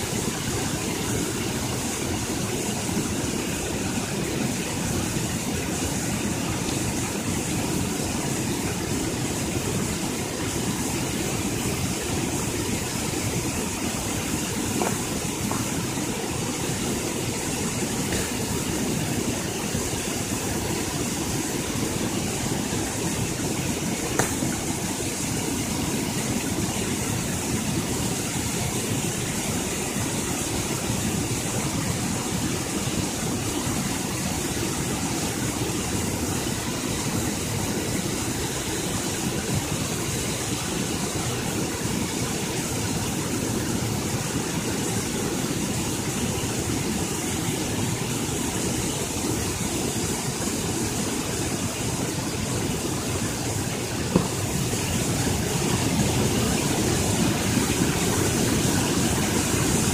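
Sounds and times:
water rushing over spillway: 0:00.0 - 0:59.9
knock: 0:54.1 - 0:54.4.

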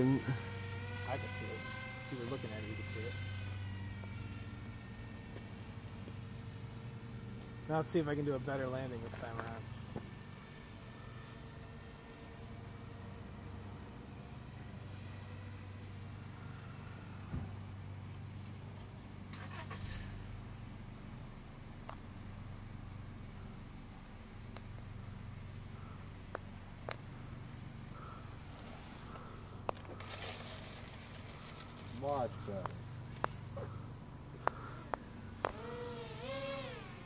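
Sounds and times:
model plane skidding on asphalt: 0:00.0 - 0:05.3, 0:19.3 - 0:20.2, 0:28.3 - 0:33.8, 0:34.7 - 0:37.0
insects chirping: 0:00.0 - 0:37.0.

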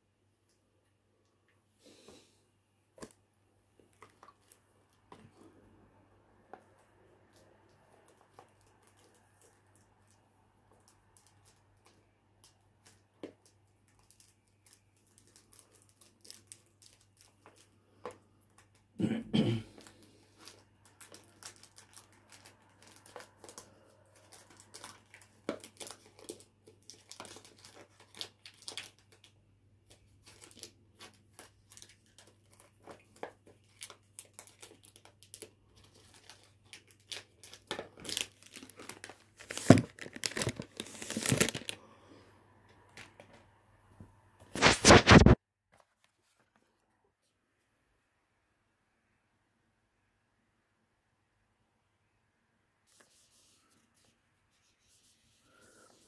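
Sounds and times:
cellophane crinkling: 0:08.0 - 0:18.7, 0:19.8 - 0:41.8, 0:44.6 - 0:45.4.

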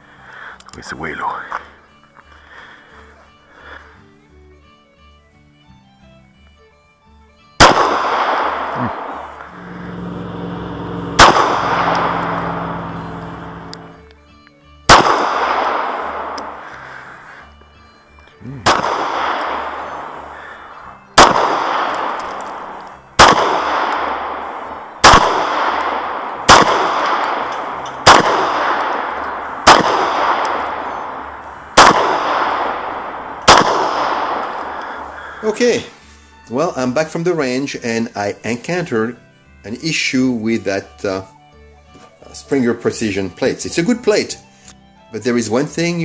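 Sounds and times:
pistol shots with echo: 0:07.6 - 0:14.0, 0:14.9 - 0:16.6, 0:18.6 - 0:20.6, 0:21.2 - 0:35.4.

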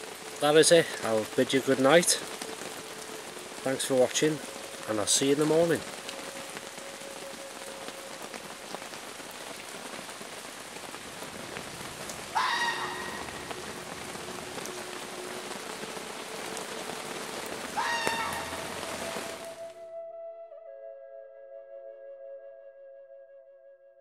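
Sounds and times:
heavy rain on tarp: 0:00.0 - 0:19.8
fox harsh cry: 0:12.3 - 0:13.3, 0:17.8 - 0:18.6.

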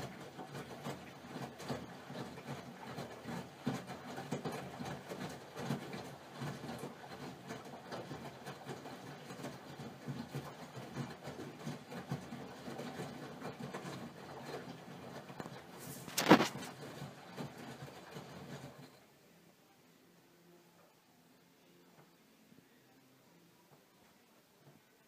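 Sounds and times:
washing machine drum turning: 0:00.0 - 0:19.0.

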